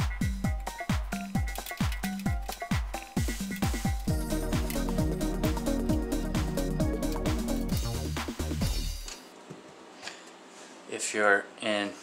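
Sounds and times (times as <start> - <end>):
kick-drum beat: 0.0 - 1.5, 2.3 - 9.1.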